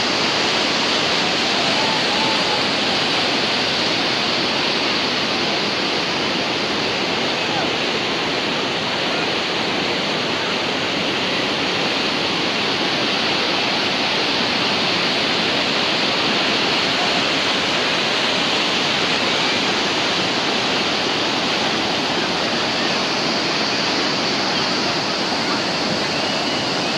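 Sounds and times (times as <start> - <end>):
waterfall rushing: 0.0 - 26.9.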